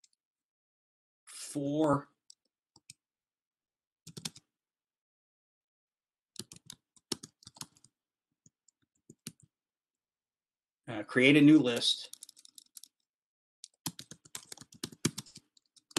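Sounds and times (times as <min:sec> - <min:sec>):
computer keyboard typing: 0:04.1 - 0:04.5, 0:06.4 - 0:09.5, 0:12.1 - 0:15.9.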